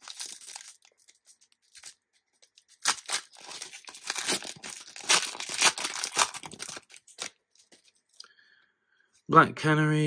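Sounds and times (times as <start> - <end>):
wrapper tearing and crinkling: 0.0 - 7.7.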